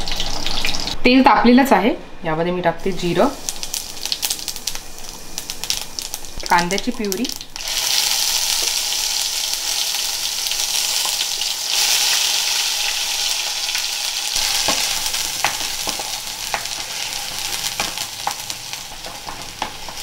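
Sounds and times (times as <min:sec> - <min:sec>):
onion puree sizzling in oil: 0:02.8 - 0:20.0
spatula stirring and tapping pan: 0:14.4 - 0:20.0.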